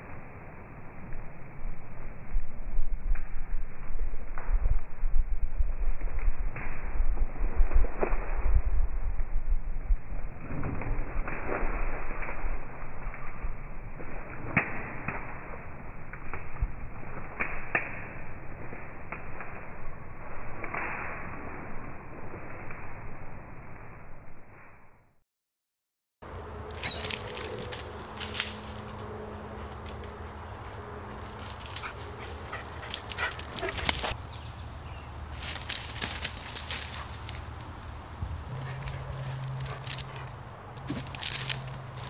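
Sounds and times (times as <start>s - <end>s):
dog rustling through undergrowth: 26.3s - 42.0s
sharp cracks: 35.3s - 42.0s.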